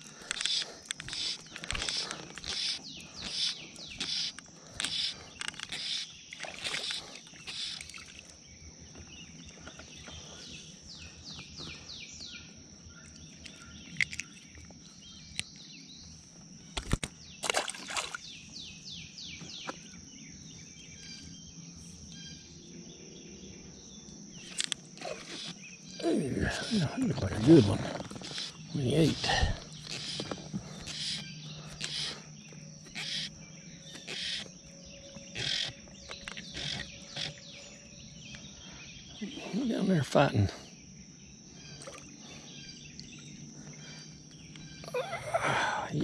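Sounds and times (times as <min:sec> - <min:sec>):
birds chirping: 0:00.0 - 0:46.0
steady high-pitched whine: 0:18.2 - 0:46.0.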